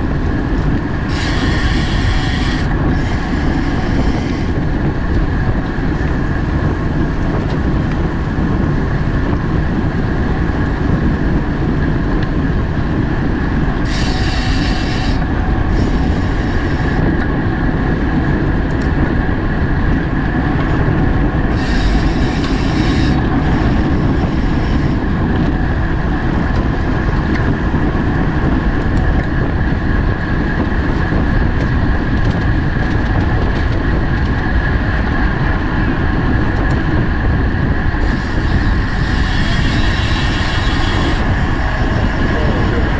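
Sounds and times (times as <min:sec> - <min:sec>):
bicycle rolling at speed: 0:00.0 - 0:42.9
wind rushing: 0:00.0 - 0:42.9
bicycle freehub ratcheting: 0:00.2 - 0:08.0, 0:10.6 - 0:17.3, 0:19.8 - 0:25.7, 0:38.0 - 0:42.9.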